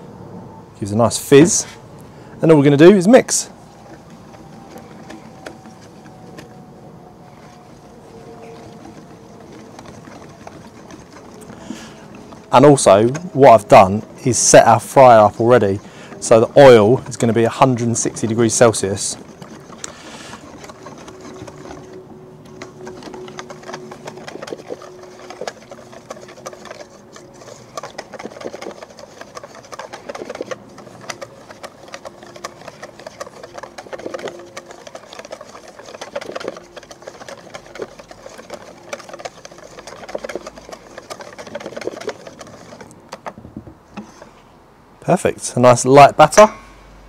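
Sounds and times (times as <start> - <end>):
whisk clicking against metal bowl: 8.3 - 43.4.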